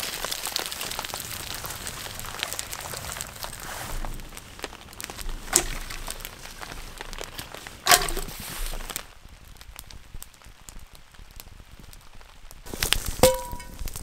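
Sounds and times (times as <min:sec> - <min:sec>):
campfire crackling and popping: 0:00.0 - 0:14.0
sticks cracking in fire: 0:00.0 - 0:14.0.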